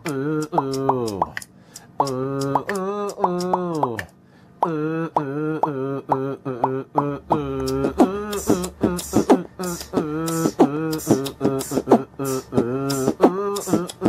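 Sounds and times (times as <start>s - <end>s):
repeated vocal syllables: 0.0s - 14.0s
low bass: 4.7s - 12.9s.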